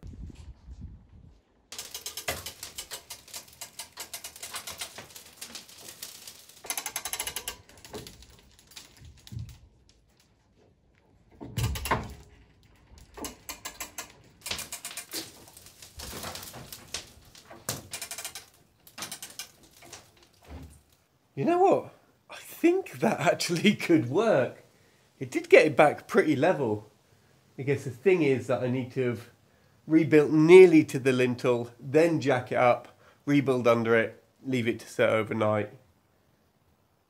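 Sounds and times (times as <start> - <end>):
winch ratcheting clicks: 1.7 - 10.2, 11.4 - 21.0.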